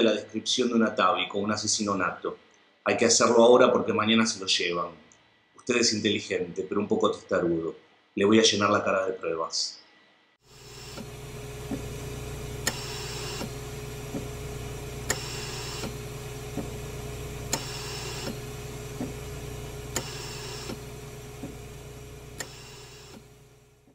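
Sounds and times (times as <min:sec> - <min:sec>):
low mechanical hum: 0:10.4 - 0:23.9
regular mechanical clicks: 0:12.6 - 0:14.3, 0:15.1 - 0:16.0, 0:17.5 - 0:18.4, 0:19.9 - 0:20.8, 0:22.4 - 0:23.9.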